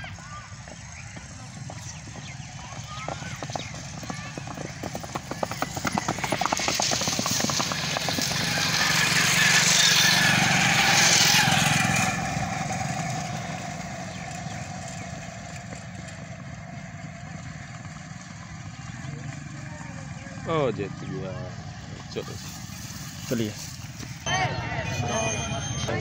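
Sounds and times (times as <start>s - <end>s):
motorcycle engine running: 0.0s - 26.0s
horse hoofbeats: 0.1s - 10.4s.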